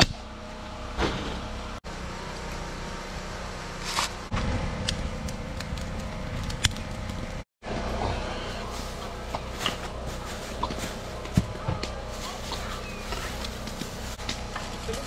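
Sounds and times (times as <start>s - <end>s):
outdoor rumble: 0.0s - 15.0s
wood fire crackling: 4.3s - 7.4s.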